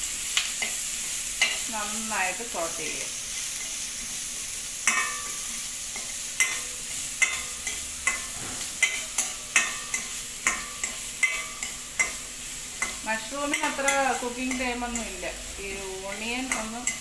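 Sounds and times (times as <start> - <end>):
onions sizzling in oil: 0.0 - 17.0
spoon scraping and clinking pan: 4.8 - 5.4, 6.0 - 15.2, 16.1 - 17.0.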